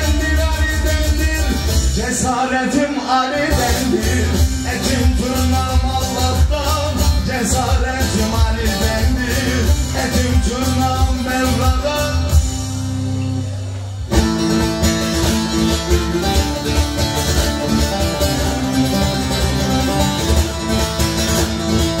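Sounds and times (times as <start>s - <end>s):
amplified long-necked lute playing: 14.1s - 22.0s.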